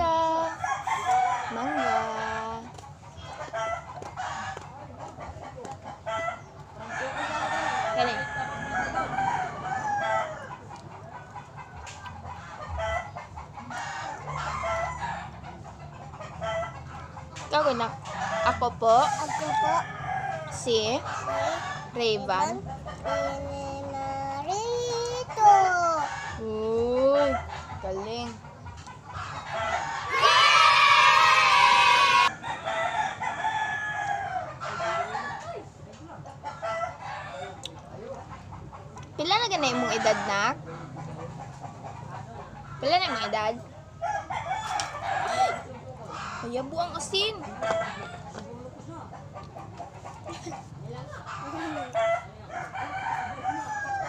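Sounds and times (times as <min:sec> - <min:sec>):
chickens clucking: 0:00.0 - 0:54.0
rooster crowing: 0:00.6 - 0:02.5, 0:06.8 - 0:10.6, 0:18.4 - 0:20.8, 0:29.5 - 0:35.4, 0:39.5 - 0:40.6, 0:44.0 - 0:45.7, 0:51.5 - 0:54.0.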